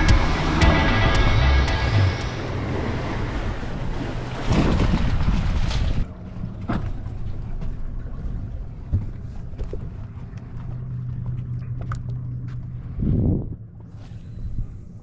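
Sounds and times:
boat motor idling: 0.0 - 4.4
water slapping against hull: 0.0 - 13.1.

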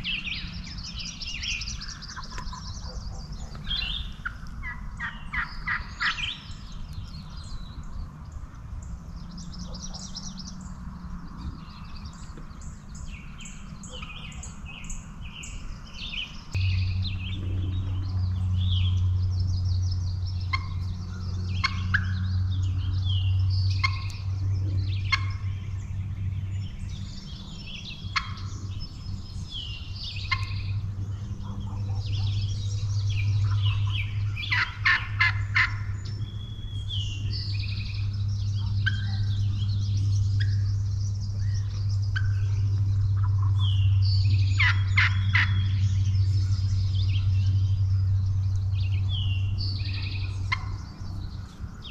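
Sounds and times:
low steady hum: 0.0 - 51.9
songbirds chirping: 0.0 - 51.9
turkey gobbling: 1.9 - 6.4, 21.6 - 22.2, 23.8 - 24.1, 25.1 - 25.4, 28.1 - 28.4, 33.5 - 35.8, 44.6 - 45.6, 50.5 - 50.8.

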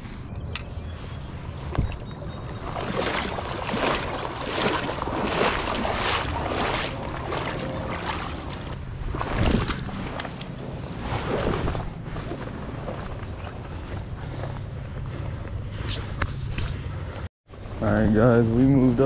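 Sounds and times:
creek water flowing: 1.6 - 15.9.

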